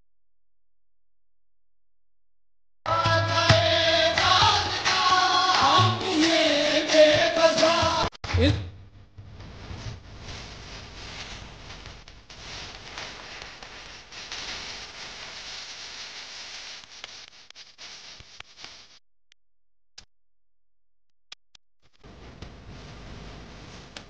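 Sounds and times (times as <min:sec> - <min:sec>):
hiss-like background noise: 0:09.6 - 0:18.3.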